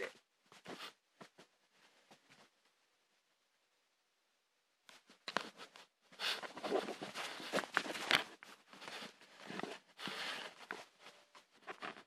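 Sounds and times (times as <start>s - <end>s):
hand rustling and bumping device: 4.9s - 12.0s.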